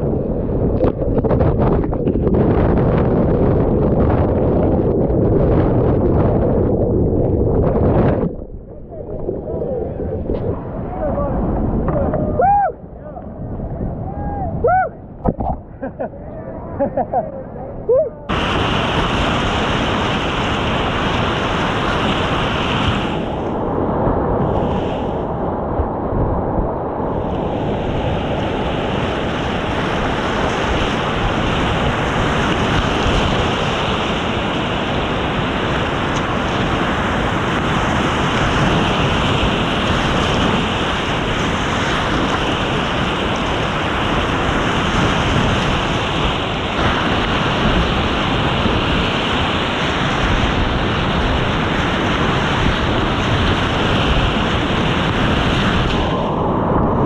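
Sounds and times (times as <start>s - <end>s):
whitewater rapids rushing: 18.3s - 23.4s.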